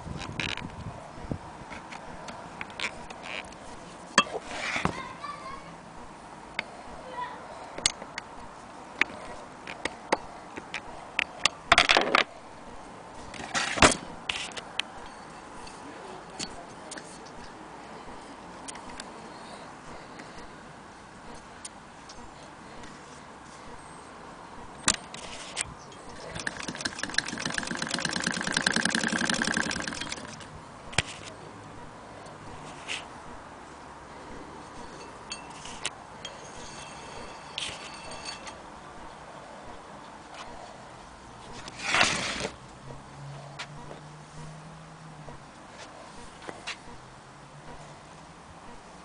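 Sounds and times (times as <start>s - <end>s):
sewing machine scraping rattles: 26.2s - 30.5s
sewing machine ticking and clicking: 26.3s - 30.4s.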